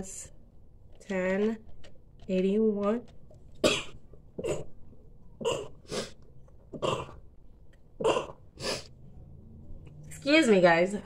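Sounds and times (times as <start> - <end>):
woman coughing: 3.6 - 4.7.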